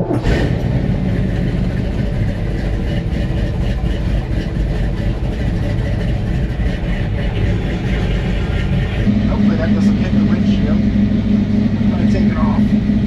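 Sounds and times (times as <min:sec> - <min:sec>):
truck engine running: 0:00.0 - 0:13.0.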